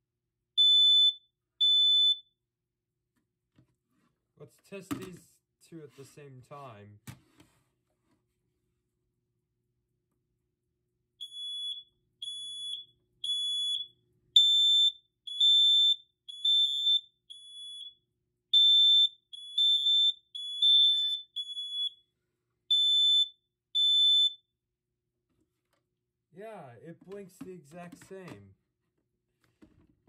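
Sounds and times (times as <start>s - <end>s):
higher-pitched smoke alarm beeping: 0.6s - 2.4s, 11.2s - 22.0s, 22.7s - 24.5s
smoke alarm beeping: 0.6s - 2.4s, 11.2s - 22.1s, 22.7s - 24.5s.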